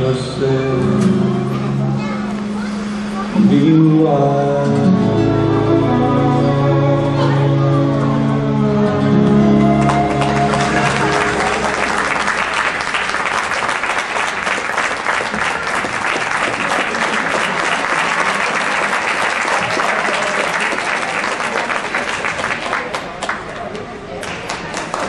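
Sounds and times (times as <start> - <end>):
music final chord: 5.2 - 13.3
audience applauding: 9.4 - 25.0.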